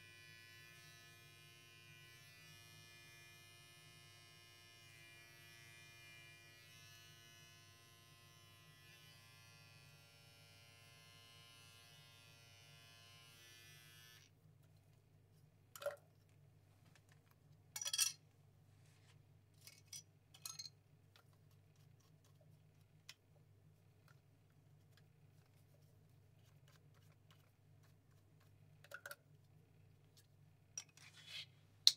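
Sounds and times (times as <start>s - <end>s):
electric hair clippers buzzing: 0.0s - 14.3s.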